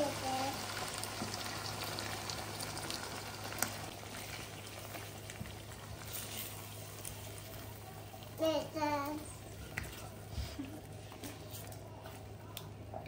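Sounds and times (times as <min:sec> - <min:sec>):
chicken and cream sizzling: 0:00.0 - 0:12.5
spatula stirring in a pan: 0:03.9 - 0:07.8.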